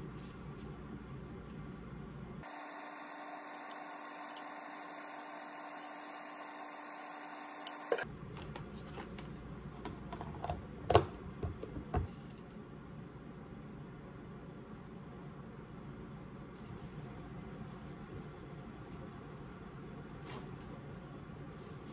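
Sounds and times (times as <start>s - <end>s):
steady hum: 0.0s - 8.2s.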